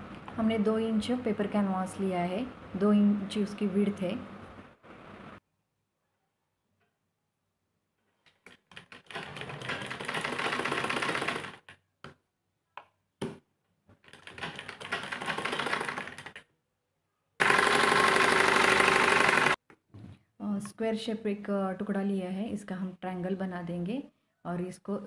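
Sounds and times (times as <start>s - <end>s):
sewing machine stitching: 8.5s - 11.7s, 14.1s - 16.4s, 17.4s - 19.6s.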